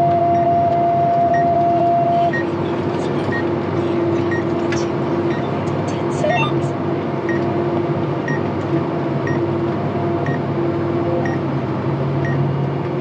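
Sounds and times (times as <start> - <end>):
tractor engine humming: 0.0 - 13.0
short high beep: 6.2 - 6.6.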